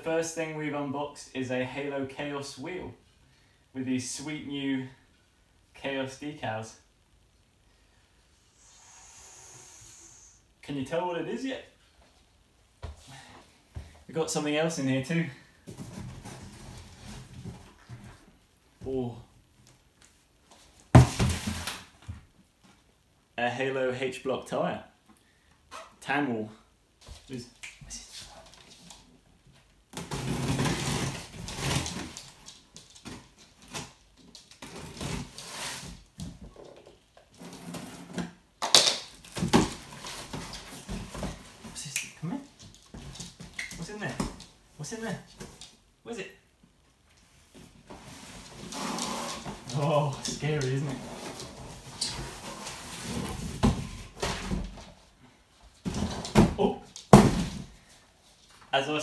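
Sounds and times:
cardboard rustling and scraping: 15.7s - 18.2s, 30.0s - 34.0s, 34.6s - 36.5s, 39.3s - 41.8s, 47.5s - 55.1s.

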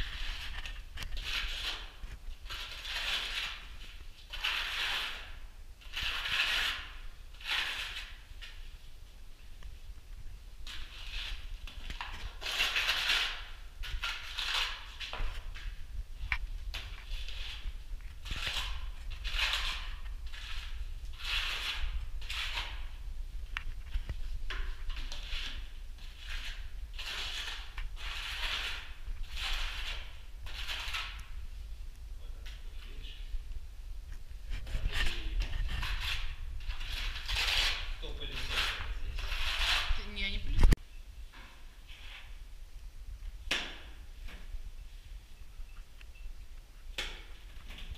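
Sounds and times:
trowel scraping adhesive on wall: 0.0s - 8.8s, 10.6s - 31.4s, 34.4s - 40.5s, 41.4s - 42.4s.

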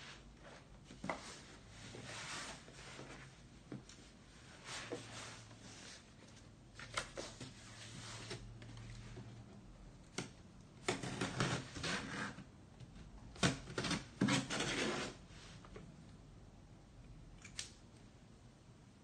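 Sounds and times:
packing tape tearing and scraping: 10.8s - 12.4s, 13.4s - 15.2s.

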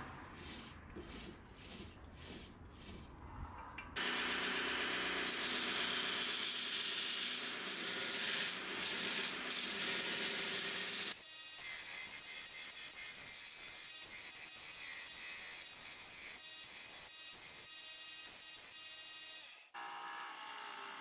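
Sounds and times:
bandsaw cutting wood: 4.0s - 13.4s.

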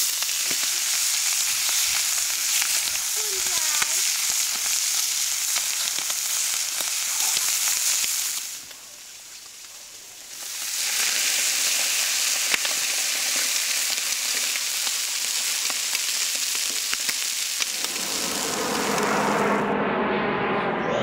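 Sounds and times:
meat sizzling on a grill: 0.0s - 19.2s
low rumble: 17.7s - 21.0s.

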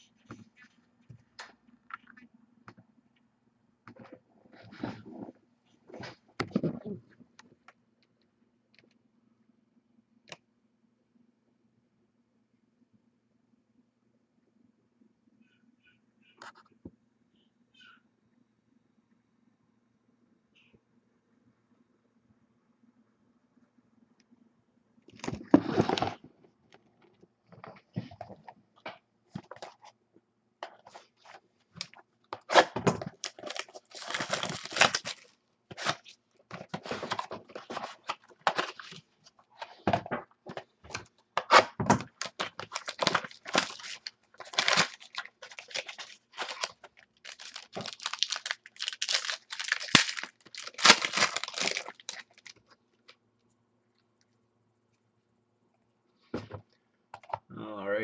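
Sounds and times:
wrapper rustling and tearing: 31.8s - 39.0s, 41.4s - 52.8s.

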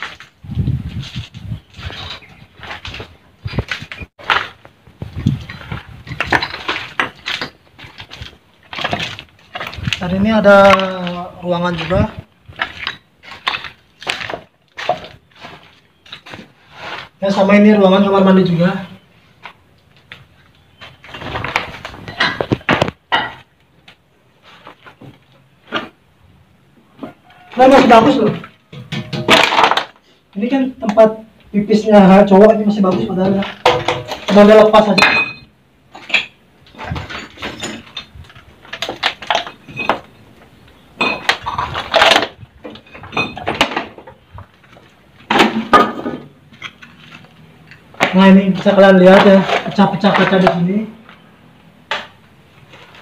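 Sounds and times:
footsteps over broken tile: 0.0s - 18.2s, 19.3s - 26.0s, 27.0s - 30.0s, 35.8s - 40.4s, 41.2s - 51.3s
ceramic and rubble clinking: 5.2s - 10.0s, 10.6s - 16.3s, 21.2s - 23.5s, 33.0s - 40.3s, 40.9s - 50.6s.

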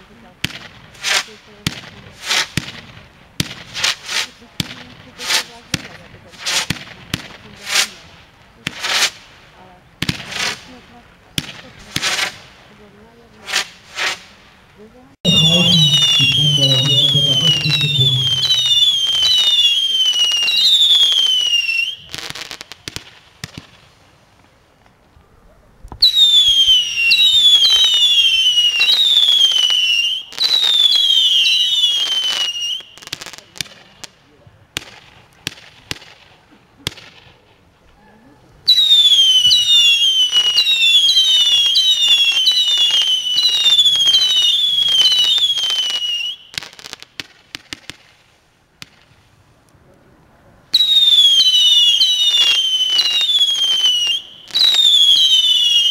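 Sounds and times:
firework cracks and pops: 0.0s - 25.2s, 25.8s - 38.0s, 38.6s - 49.8s, 50.7s - 55.9s
whistling firework shots: 15.3s - 23.8s, 25.9s - 34.2s, 38.6s - 48.2s, 50.7s - 55.9s.

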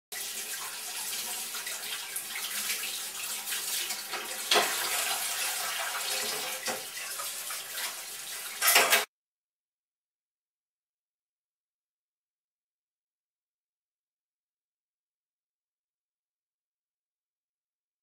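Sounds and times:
water running from a tap: 0.1s - 9.1s.

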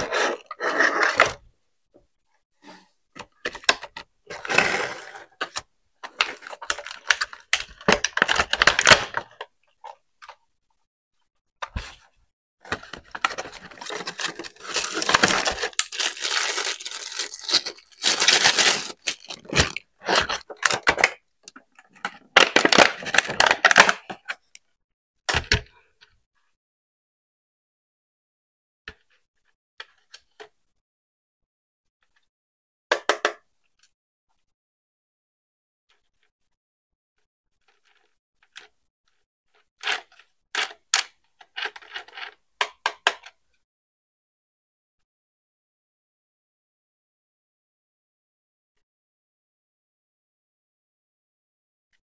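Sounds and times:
packaging tearing and crinkling: 13.2s - 20.9s.

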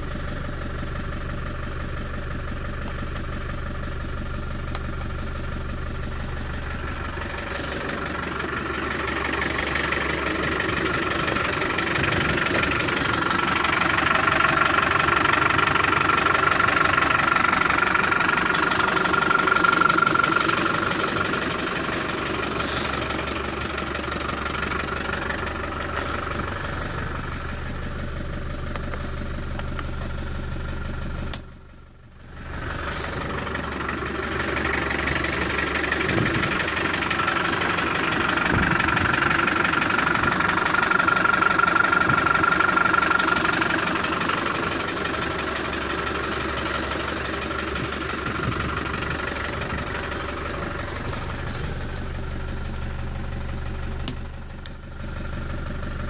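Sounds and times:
diesel engine idling: 0.0s - 56.0s
click: 31.2s - 31.5s.

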